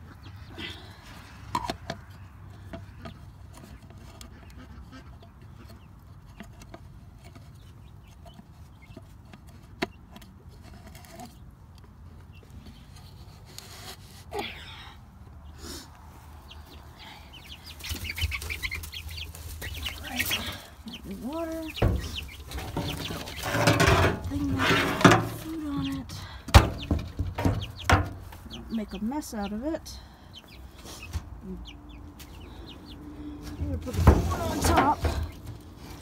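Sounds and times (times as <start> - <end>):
chickens clucking softly: 16.2 - 36.0
knocks and rustling of plastic feeder: 17.8 - 28.4, 33.4 - 36.0.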